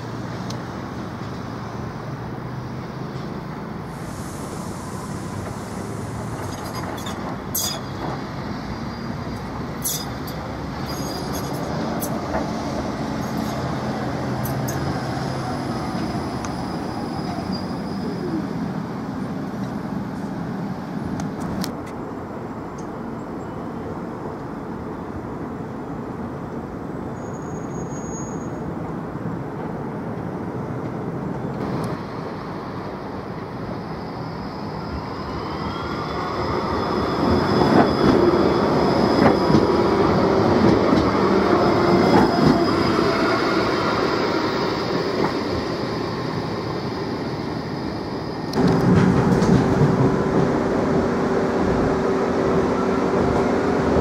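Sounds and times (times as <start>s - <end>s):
tram rolling rumble: 0.0s - 54.0s.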